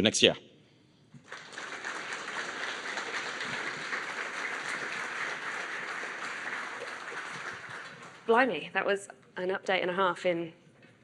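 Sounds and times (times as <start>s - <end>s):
audience applauding: 1.2s - 8.6s.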